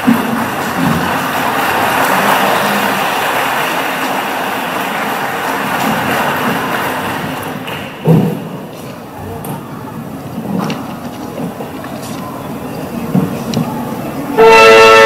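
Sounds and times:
audience applause: 0.0s - 15.0s
audience murmuring: 0.0s - 15.0s
thump: 8.0s - 8.5s.

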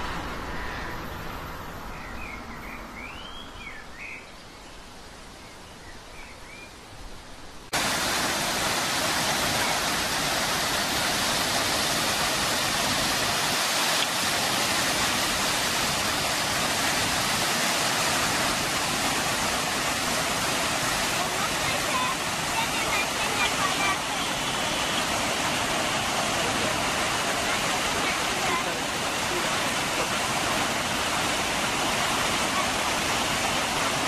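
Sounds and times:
bird chirps: 1.9s - 4.5s
water cascading over rocks: 7.7s - 34.0s.

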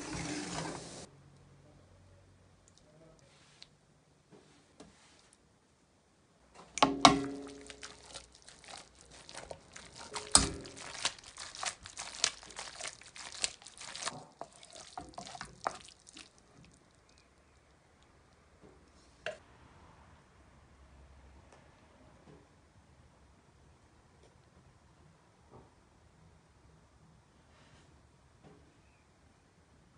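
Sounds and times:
spatula stirring pasta in pan: 6.8s - 17.2s.

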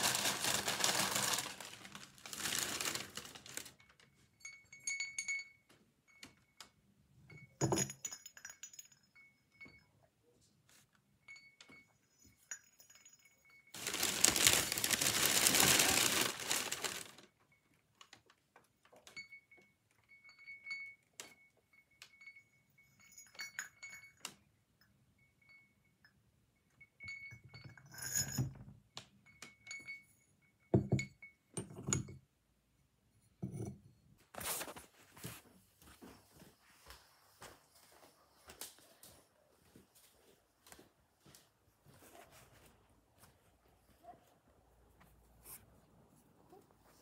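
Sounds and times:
wrapping paper rustling: 0.0s - 4.0s, 13.8s - 17.3s
ceramic bells clinking: 2.4s - 10.3s, 11.2s - 17.9s, 18.8s - 32.3s, 33.2s - 33.8s.

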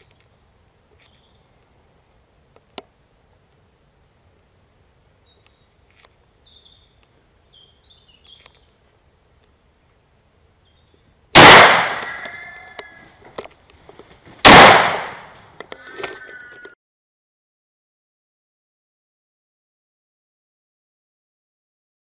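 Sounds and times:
loud gunshot with echo: 11.4s - 12.2s, 14.4s - 15.3s.

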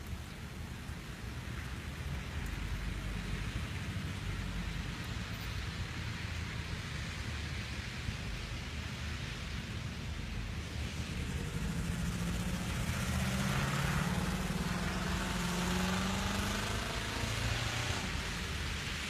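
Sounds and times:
tyre hiss on wet road: 0.0s - 19.0s
vehicle engine hum: 10.6s - 19.0s.

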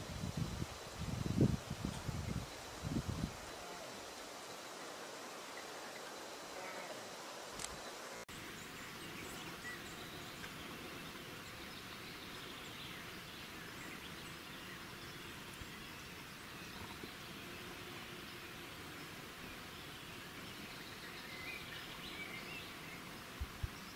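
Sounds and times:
outdoor ambient hiss: 0.0s - 23.9s
faint bird chirps: 7.7s - 23.9s.

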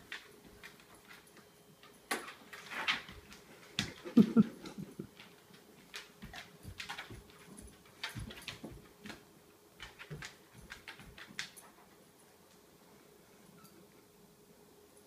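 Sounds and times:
dog claws clicking on floor: 0.0s - 12.6s.

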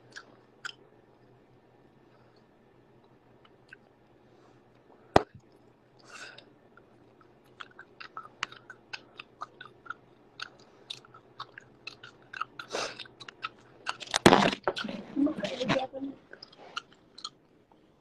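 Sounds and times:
gum chewing wet smacks: 7.1s - 15.0s, 16.3s - 17.4s.

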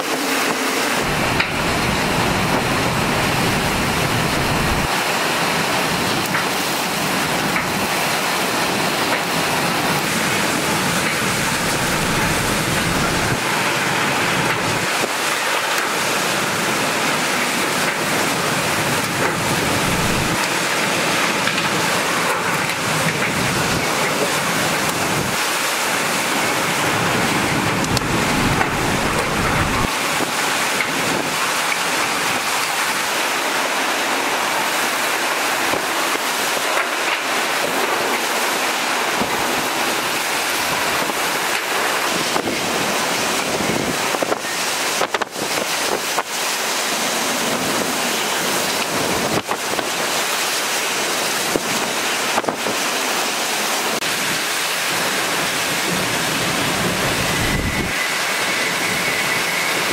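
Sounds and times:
roaring wind and rain: 0.0s - 59.9s
wind buffeting microphone: 0.4s - 15.3s, 17.8s - 33.1s, 55.4s - 59.9s.

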